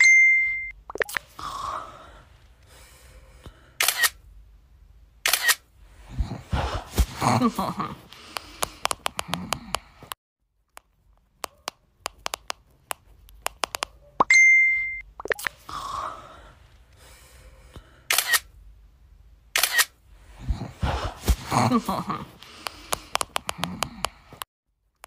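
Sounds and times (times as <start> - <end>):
short steady beep: 0.0 - 0.8, 14.3 - 15.1
camera shutter clicks: 3.8 - 4.2, 5.2 - 5.7, 18.1 - 18.5, 19.6 - 20.0.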